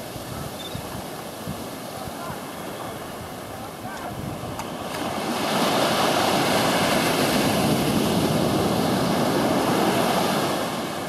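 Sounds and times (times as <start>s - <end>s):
surf breaking on beach: 0.0s - 11.0s.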